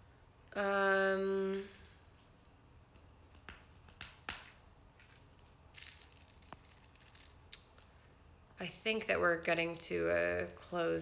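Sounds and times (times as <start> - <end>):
soft rustle: 1.4 - 8.2.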